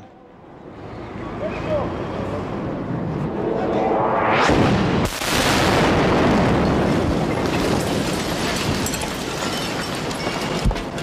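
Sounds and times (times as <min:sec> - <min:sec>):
rushing rumble: 0:02.5 - 0:10.3
bomb explosion blast: 0:03.9 - 0:09.5.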